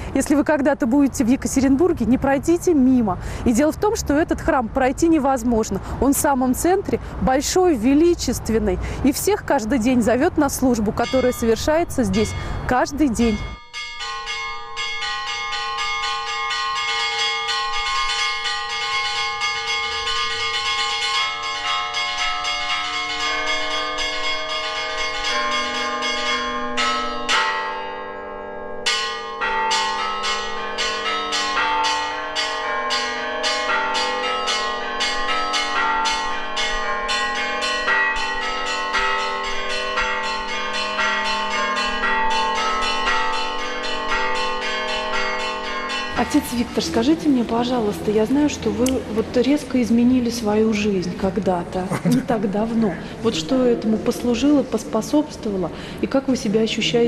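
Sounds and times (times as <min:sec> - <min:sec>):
church bells pealing: 0:09.2 - 0:51.4.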